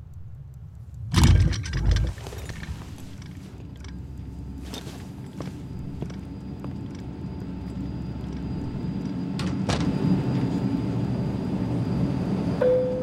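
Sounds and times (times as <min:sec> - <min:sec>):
sharp clicks: 0:00.0 - 0:02.1
airliner cabin drone: 0:00.0 - 0:13.0.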